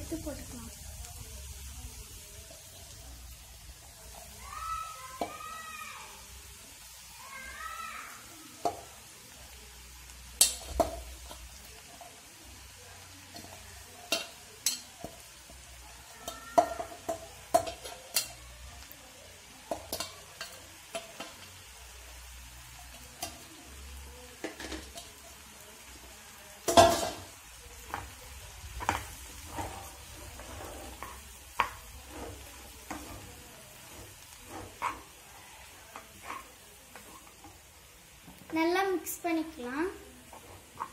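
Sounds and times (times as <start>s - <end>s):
light sizzle: 0.0s - 40.9s
spoon tapping and scraping pan: 5.1s - 5.4s, 8.6s - 9.0s, 10.4s - 12.2s, 13.3s - 18.4s, 19.7s - 21.6s, 22.9s - 23.5s, 24.4s - 25.4s, 26.6s - 35.3s, 35.9s - 38.6s, 40.2s - 40.9s.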